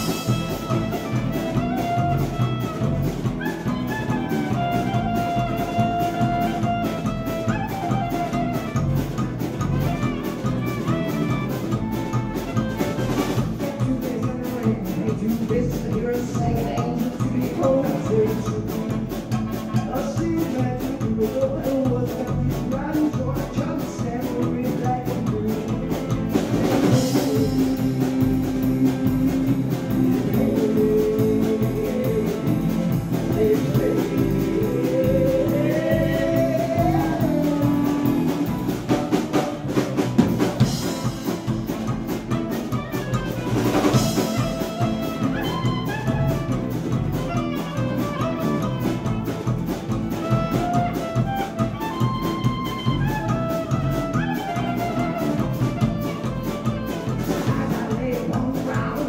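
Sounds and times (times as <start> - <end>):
clarinet melody: 0.0 - 13.5, 19.2 - 20.3, 42.2 - 57.4
live band playing: 0.0 - 59.0
loud drums: 0.0 - 59.0.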